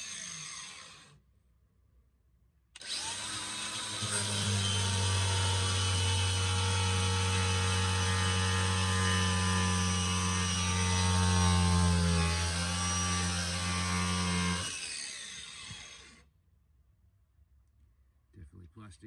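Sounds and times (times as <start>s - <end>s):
angle grinder cutting plastic: 0.0s - 1.2s, 2.8s - 16.2s.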